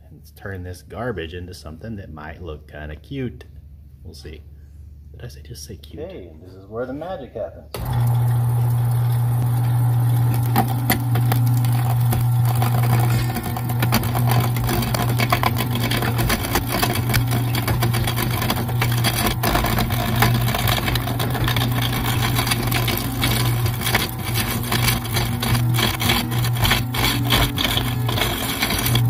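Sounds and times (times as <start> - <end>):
lathe motor hum: 7.8 - 29.0
tool scraping spinning wood: 7.8 - 29.0.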